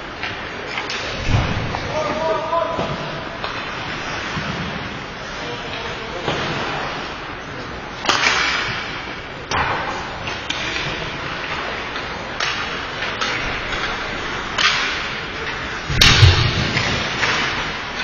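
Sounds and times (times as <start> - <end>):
hockey sticks and puck clacking: 0.2 - 18.0
heavy thump: 15.9 - 17.0.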